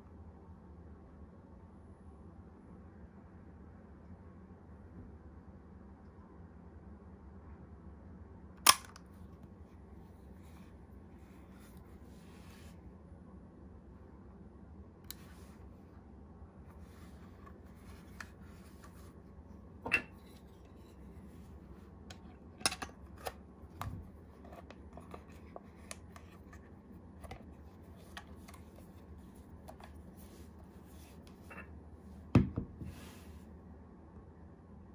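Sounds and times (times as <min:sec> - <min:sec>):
camera body handling rubbing: 0:16.8 - 0:19.2.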